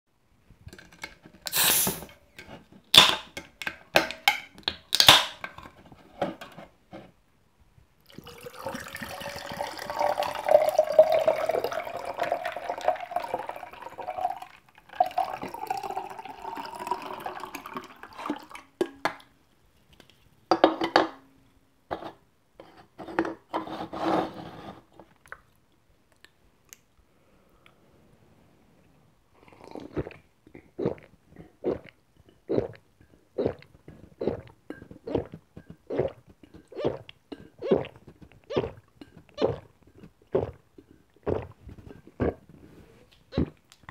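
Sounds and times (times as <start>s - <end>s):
drink can opening: 0.7s - 2.2s, 2.9s - 5.7s
drink pouring over ice: 8.1s - 18.6s.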